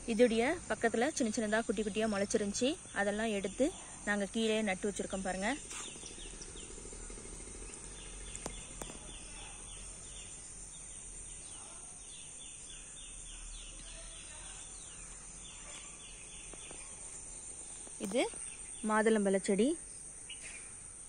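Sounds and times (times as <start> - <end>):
high insect buzz: 0.0 - 21.0
faint clicks: 8.2 - 9.1.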